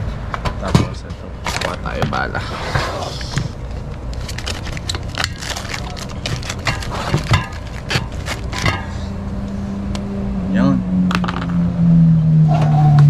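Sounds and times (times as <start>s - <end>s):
low hum: 0.0s - 13.0s
plastic wrapping crinkling: 1.4s - 2.4s, 3.1s - 9.0s.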